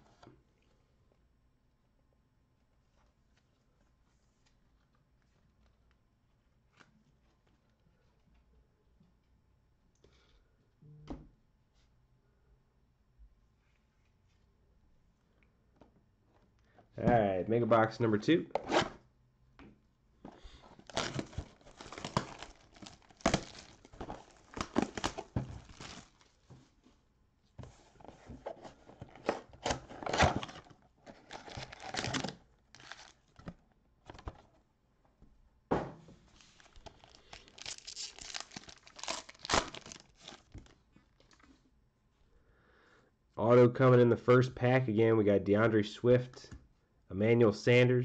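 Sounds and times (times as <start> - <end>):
foil pack crinkling: 20.4 - 26.4, 29.7 - 33.5, 36.4 - 40.8
plastic wrap crinkling and tearing: 20.5 - 26.4, 29.1 - 33.4, 36.4 - 41.4
cardboard box opening: 20.8 - 26.2, 27.9 - 33.2, 36.4 - 40.5.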